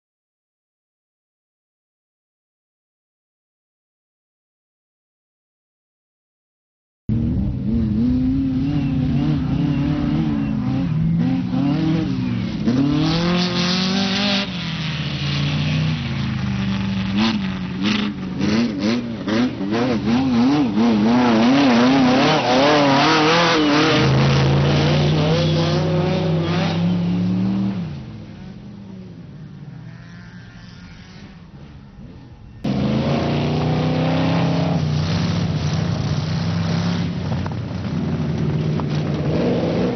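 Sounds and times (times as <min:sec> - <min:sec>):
race car engines revving: 0:07.1 - 0:39.9.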